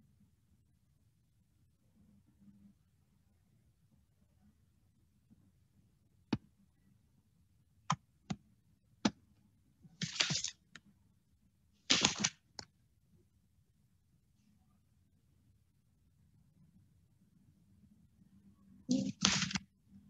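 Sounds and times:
short scratchy noises: 18.9s - 19.6s.

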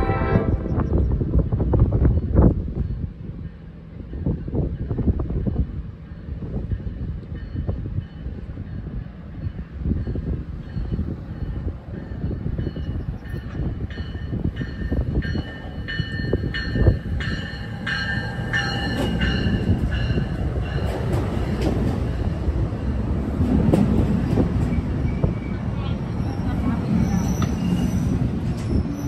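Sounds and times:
train wheels rumbling on rail: 0.0s - 29.0s
train bell ringing: 2.4s - 21.2s.

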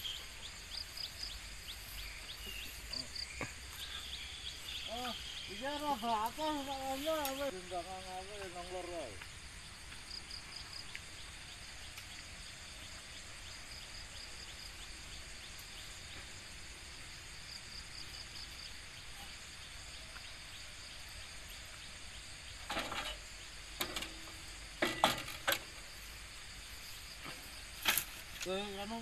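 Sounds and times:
insects chirping: 0.0s - 29.0s
metal implements clattering: 22.7s - 25.7s.

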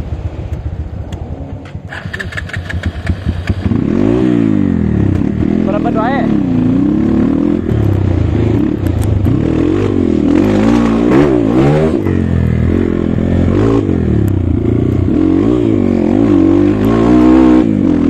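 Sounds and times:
dirt bike engine revving: 1.8s - 18.0s.

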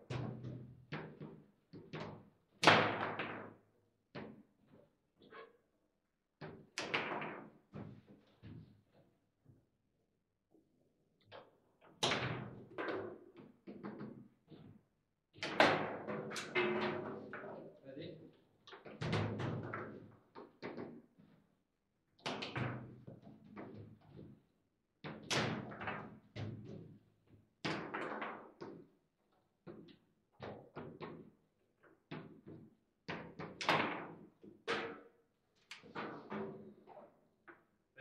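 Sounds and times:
table football clacks and knocks: 0.1s - 4.8s, 6.4s - 8.8s, 11.2s - 14.8s, 15.4s - 17.8s, 18.7s - 21.2s, 22.2s - 24.4s, 25.0s - 29.0s, 29.6s - 37.7s.

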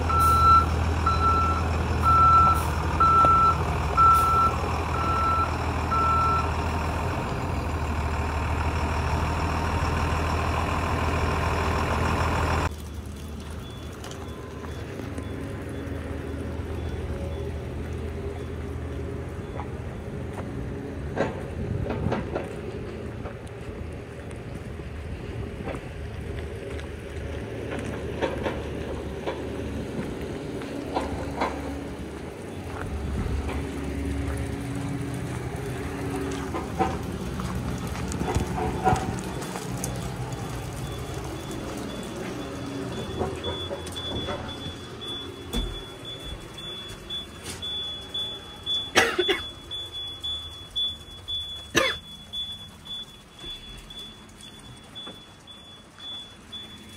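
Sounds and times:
footsteps on gravel: 25.6s - 44.8s
electronic warning beep: 40.8s - 56.9s.

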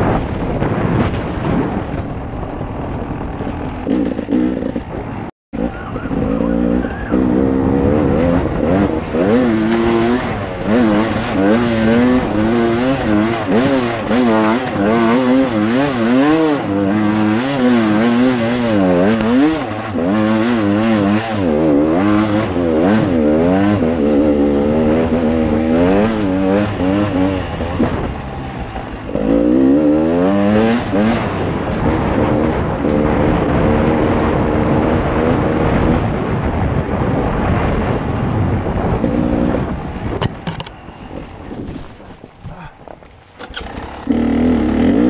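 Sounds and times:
motorcycle engine revving: 0.0s - 45.0s.

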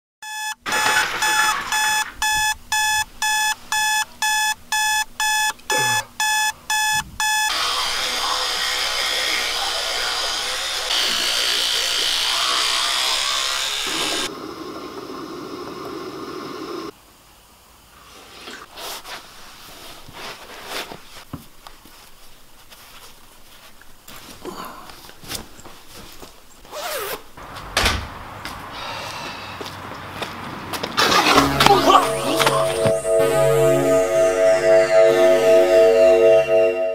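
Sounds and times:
alarm clock beeping: 0.2s - 7.6s, 31.0s - 36.9s
electric toothbrush buzzing: 7.5s - 14.3s.

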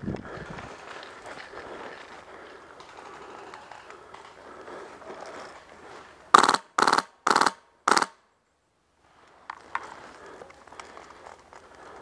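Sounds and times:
airsoft gun full-auto bursts: 6.3s - 8.2s.

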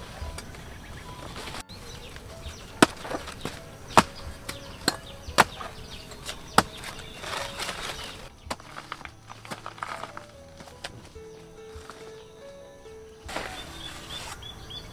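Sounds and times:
cleaver chopping plant stem: 2.8s - 10.2s.

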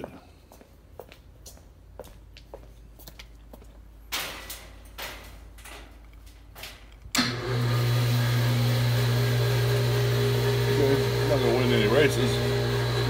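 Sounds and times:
lift motor humming: 7.1s - 13.0s.

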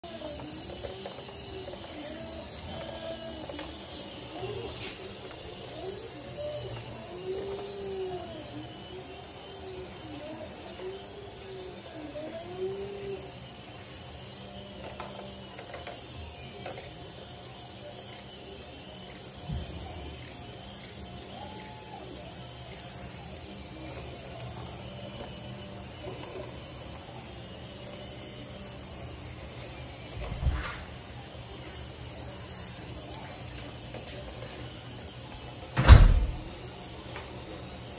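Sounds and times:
robot drive motors whining: 0.0s - 37.9s
even hiss: 35.2s - 37.6s.

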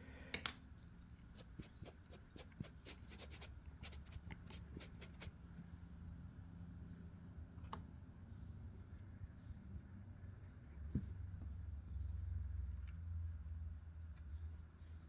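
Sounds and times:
sponge rubbing on clay: 1.3s - 5.3s.

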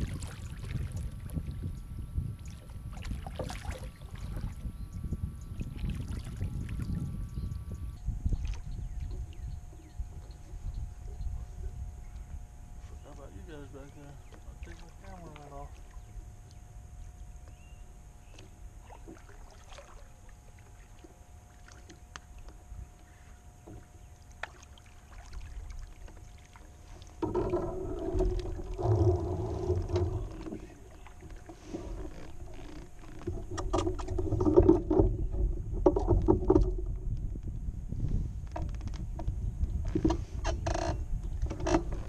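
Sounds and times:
wind rumble: 0.0s - 14.8s, 27.1s - 42.0s.

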